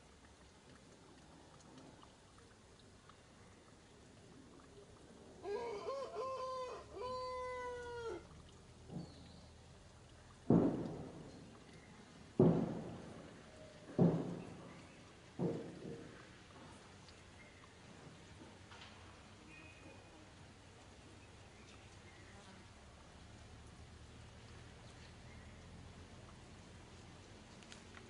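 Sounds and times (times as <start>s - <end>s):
loud dull thumps: 10.5s - 11.3s, 12.4s - 14.8s.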